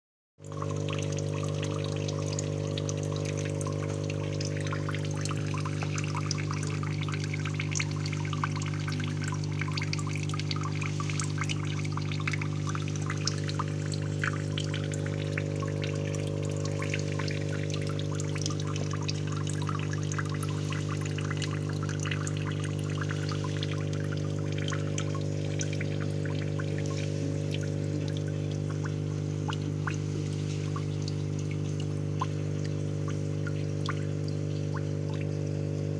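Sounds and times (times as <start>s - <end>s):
steady low hum: 0.4s - 35.9s
water trickling and splashing: 0.4s - 35.9s.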